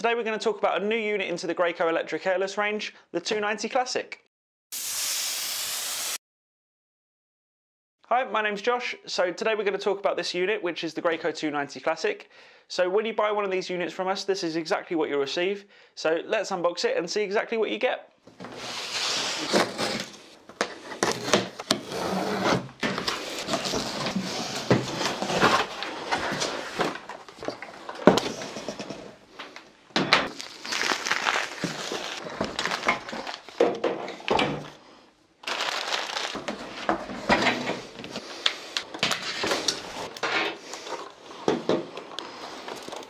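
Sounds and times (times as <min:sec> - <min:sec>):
packaging rustling and crackling: 0:30.3 - 0:33.7, 0:35.4 - 0:36.9.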